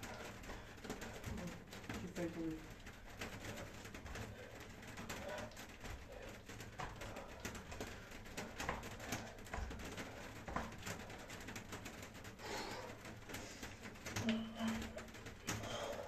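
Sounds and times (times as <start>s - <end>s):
bare feet thudding on exercise mat: 5.2s - 11.8s.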